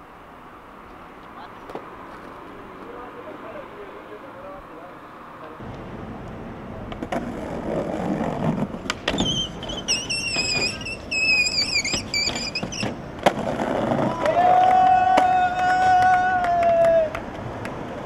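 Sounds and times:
skateboard wheels rolling: 0:00.0 - 0:18.0
skateboard clacks: 0:05.7 - 0:18.0
skateboard sliding screech: 0:07.1 - 0:17.1.

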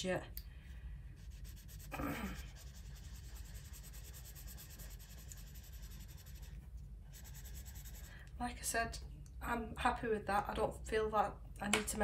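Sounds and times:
pencil scratching on paper: 0:01.2 - 0:08.1.

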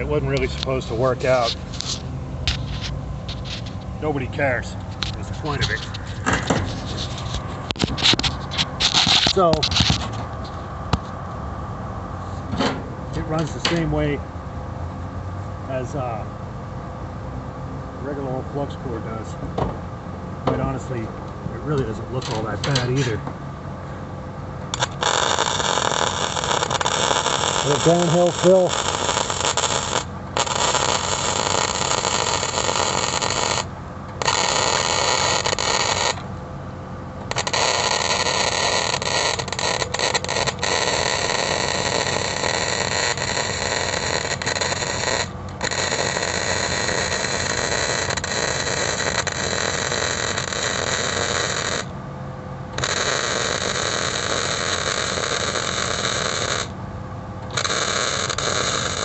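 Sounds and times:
welding arc crackling: 0:05.0 - 0:10.1, 0:24.7 - 0:36.2, 0:37.2 - 0:51.9, 0:52.8 - 0:56.8, 0:57.4 - 0:59.0.

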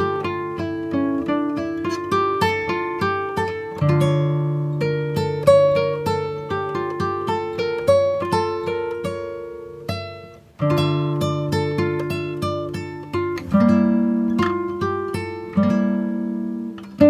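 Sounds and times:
acoustic guitar melody: 0:00.0 - 0:17.0.

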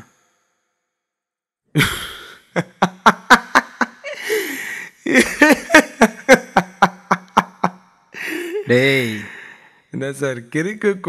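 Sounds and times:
man laughing hard: 0:01.8 - 0:09.3.

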